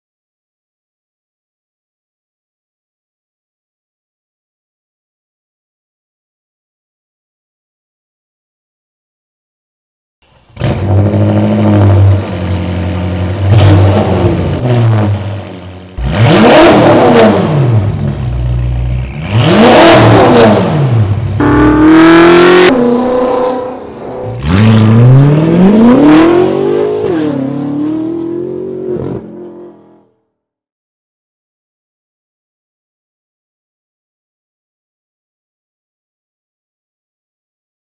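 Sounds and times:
car engine starting and revving: 10.3 - 30.0.

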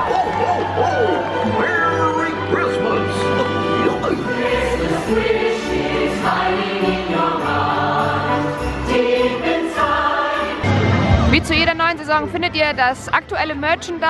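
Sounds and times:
choir singing: 0.0 - 11.0.

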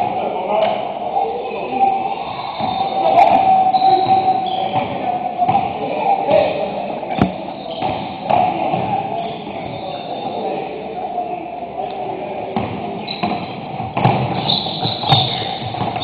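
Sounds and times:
din of players' voices: 0.0 - 16.0
sneaker squeaks: 2.1 - 5.7, 7.1 - 10.6, 13.0 - 16.0
basketball bouncing on court: 12.6 - 16.0.

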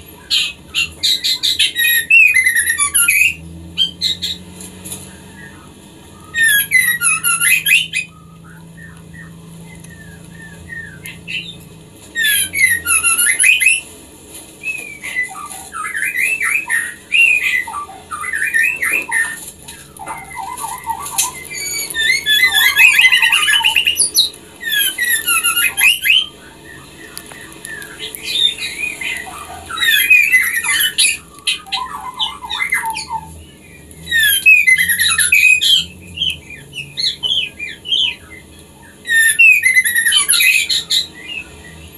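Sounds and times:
bird chattering call: 0.0 - 13.9, 14.6 - 41.9.

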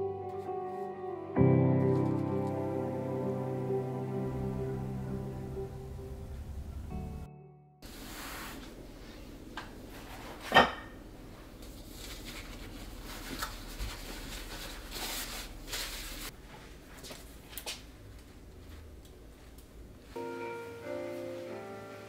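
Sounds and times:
paper towels rustling: 7.8 - 10.4, 11.3 - 22.0.

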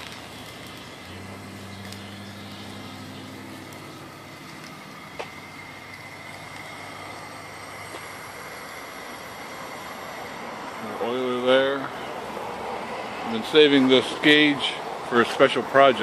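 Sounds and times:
boiler steam hiss: 0.0 - 16.0.

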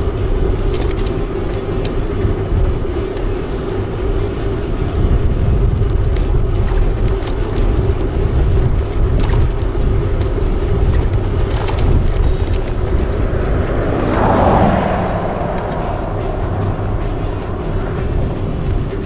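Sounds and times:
wind buffeting microphone: 0.0 - 19.0
steady hum: 12.2 - 19.0.

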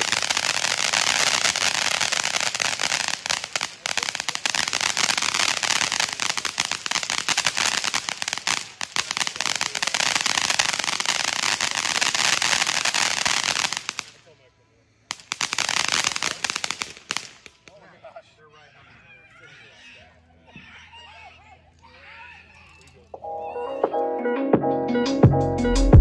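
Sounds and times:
firework fountain crackling hiss: 0.0 - 17.8.

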